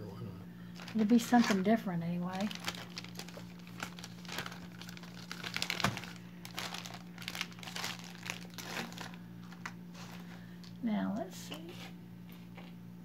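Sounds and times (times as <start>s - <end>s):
steady low hum: 0.0s - 13.0s
plastic bag crinkling: 0.7s - 10.8s.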